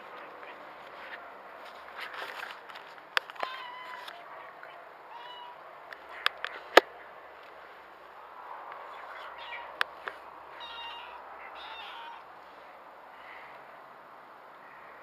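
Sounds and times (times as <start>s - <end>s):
kitten mewing: 10.6s - 12.2s.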